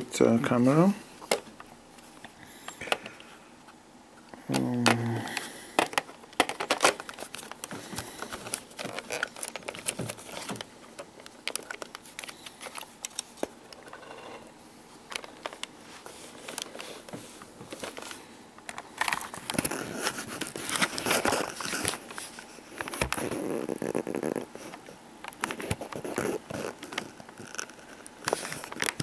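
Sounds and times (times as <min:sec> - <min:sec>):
fabric and strap rustling: 0:15.0 - 0:24.8.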